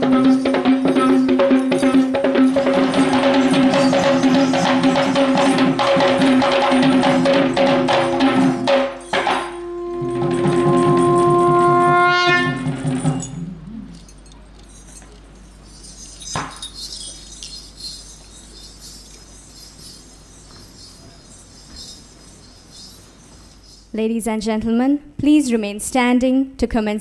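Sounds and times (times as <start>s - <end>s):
drumming: 0.0s - 13.7s
horn-like wind instrument: 8.6s - 12.8s.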